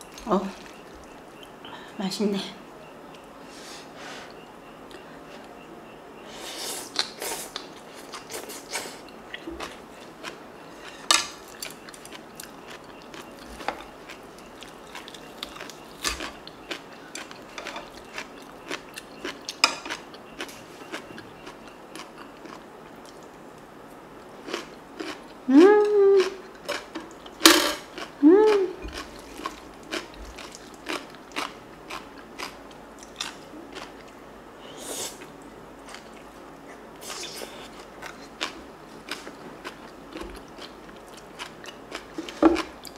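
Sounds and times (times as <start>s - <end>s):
chewing food: 6.9s - 25.5s, 26.2s - 34.2s, 35.2s - 42.9s
person humming mm: 25.5s - 26.4s, 28.2s - 28.8s
crunching kimchi: 26.2s - 34.2s.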